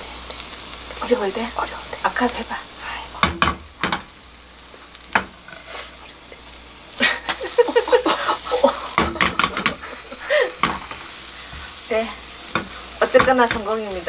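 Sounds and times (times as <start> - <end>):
egg sizzling in a pan: 0.0 - 14.0
spatula scraping and knocking pan: 3.2 - 4.1, 4.8 - 5.9, 8.9 - 10.0, 10.6 - 11.8, 12.5 - 13.9.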